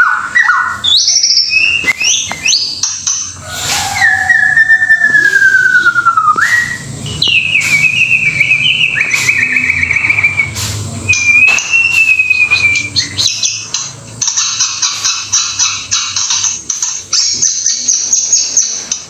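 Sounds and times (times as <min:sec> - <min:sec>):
bird whistled song: 0:00.0 - 0:13.7.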